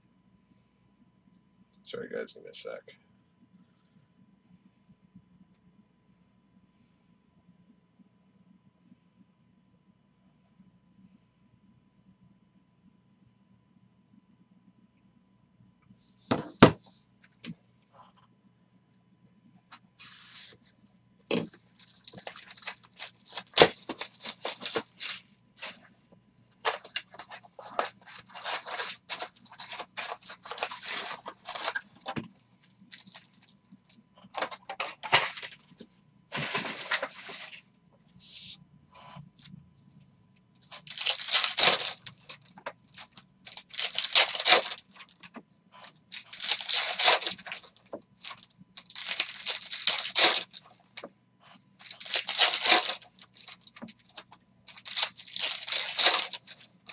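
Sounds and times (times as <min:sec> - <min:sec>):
foil wrappers ripping and crinkling: 0:21.6 - 0:25.9, 0:26.6 - 0:33.5, 0:34.3 - 0:37.6, 0:40.6 - 0:51.1, 0:51.8 - 0:56.9.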